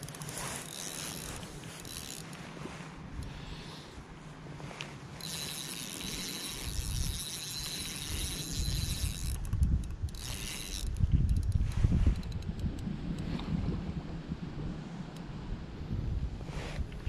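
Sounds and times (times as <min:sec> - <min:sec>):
fishing reel whirring: 0:00.0 - 0:03.6, 0:05.1 - 0:12.8.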